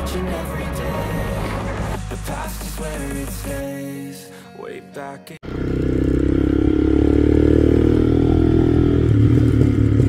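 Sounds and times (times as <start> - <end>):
motorcycle engine with loud exhaust: 5.4 - 10.0.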